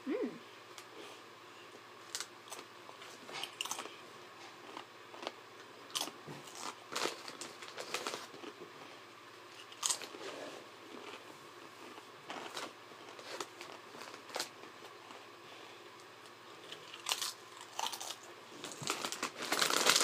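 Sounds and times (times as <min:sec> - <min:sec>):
chips crunching while chewed: 0:02.0 - 0:08.6, 0:09.5 - 0:10.3, 0:10.9 - 0:15.2, 0:16.6 - 0:20.0.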